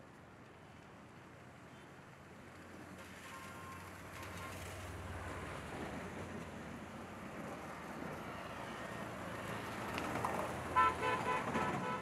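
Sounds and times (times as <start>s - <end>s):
traffic: 0.0s - 12.0s
car horn short blasts: 10.8s - 12.0s.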